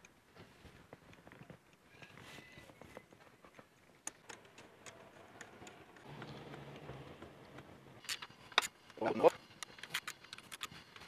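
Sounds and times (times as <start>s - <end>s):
small metal clicks of bolts: 9.6s - 11.0s.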